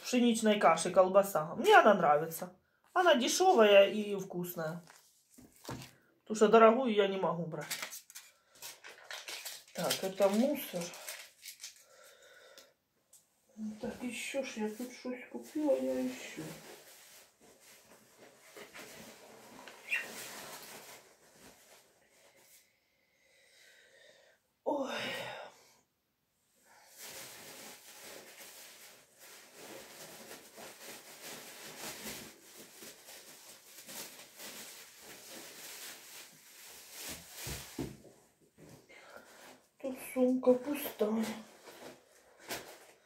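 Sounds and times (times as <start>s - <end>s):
plastic bag rustling: 4.7s - 6.1s, 7.6s - 12.4s, 13.8s - 22.6s, 26.7s - 39.6s, 40.4s - 43.0s.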